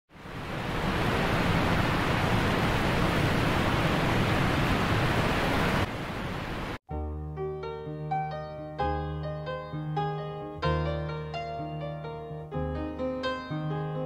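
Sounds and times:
road and wind noise in van: 0:00.2 - 0:06.8.

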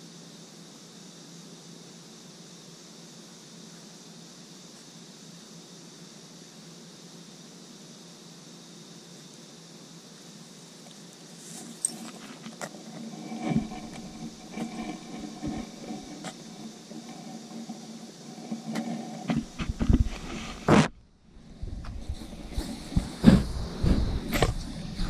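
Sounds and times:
dog brushing against camera: 0:11.4 - 0:20.9.

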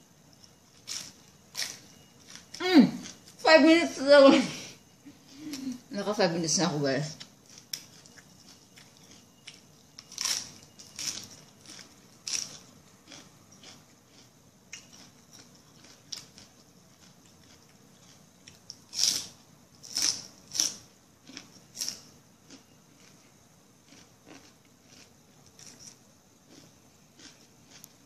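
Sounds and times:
person chewing with wet crunches: 0:07.2 - 0:28.0.

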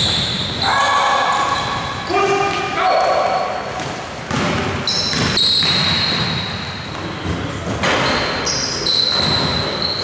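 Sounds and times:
sneakers squeaking on hardwood floor: 0:00.0 - 0:10.0
basketball bouncing: 0:03.8 - 0:08.4, 0:09.0 - 0:09.8.

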